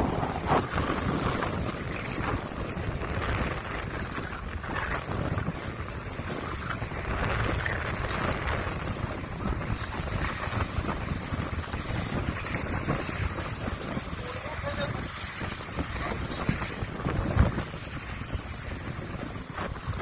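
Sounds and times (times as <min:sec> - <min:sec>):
water splashing in shallows: 0:00.0 - 0:20.0
wind buffeting microphone: 0:00.0 - 0:20.0.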